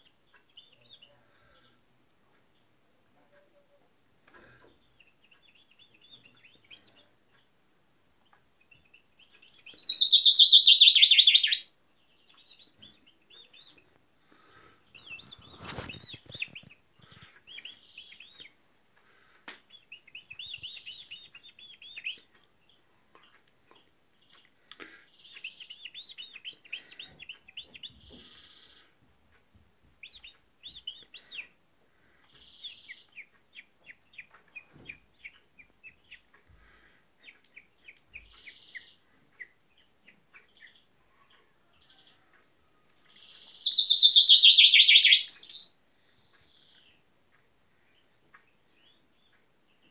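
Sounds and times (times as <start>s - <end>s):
bird singing: 0.0s - 1.8s, 4.7s - 7.5s, 8.6s - 13.9s, 19.7s - 24.4s, 32.3s - 41.3s, 42.0s - 47.0s.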